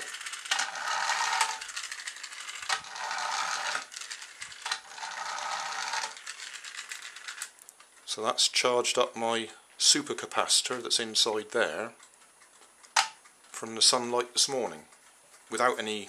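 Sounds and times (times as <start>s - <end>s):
toy car motor whirring: 0.0s - 7.6s.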